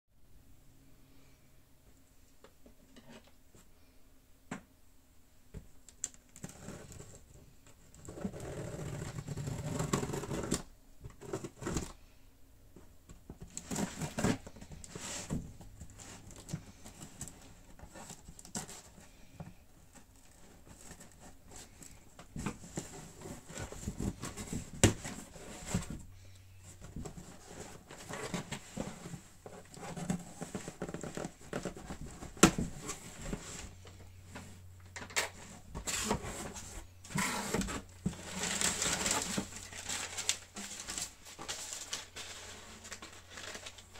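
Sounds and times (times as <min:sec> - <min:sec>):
cardboard flaps scraping and knocking: 0:13.1 - 0:26.1, 0:26.7 - 0:33.8.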